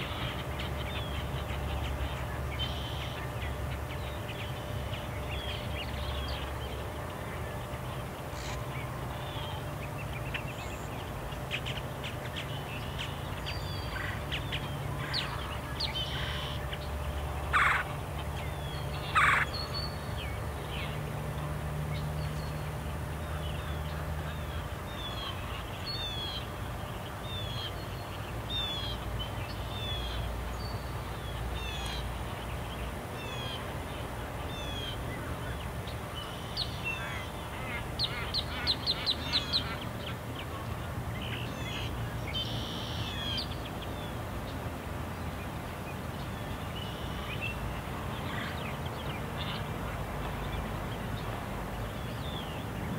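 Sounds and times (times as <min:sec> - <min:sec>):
birds chirping: 0:00.0 - 0:52.9.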